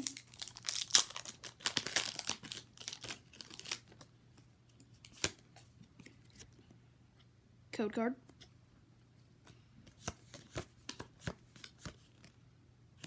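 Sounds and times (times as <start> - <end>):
foil pack crackling: 0.0 - 3.9.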